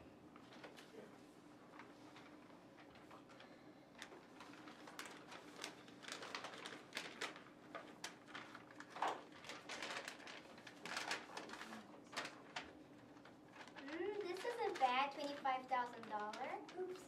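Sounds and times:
paper rustling and crinkling: 0.4s - 17.0s
envelopes tearing: 4.4s - 16.7s.

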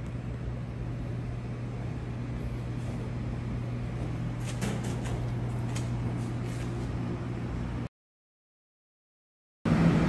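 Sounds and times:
low machine hum with hiss: 0.0s - 7.9s.

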